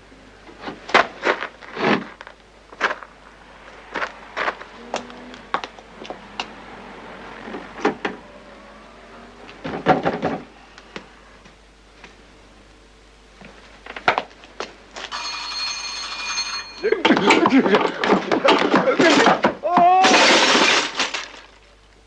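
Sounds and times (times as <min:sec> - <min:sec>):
objects knocking and clattering: 0:09.6 - 0:10.5, 0:15.1 - 0:21.6
steady high ringing tones: 0:14.8 - 0:18.0.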